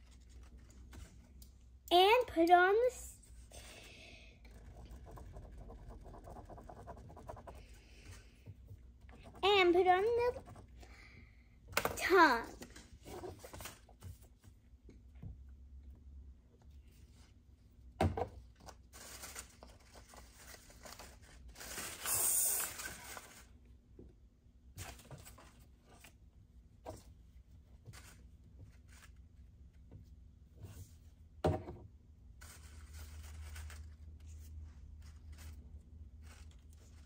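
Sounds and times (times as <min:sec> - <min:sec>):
scraping rustle of paper: 0:18.9 - 0:23.6, 0:32.4 - 0:37.0
paper rustling: 0:32.4 - 0:37.0.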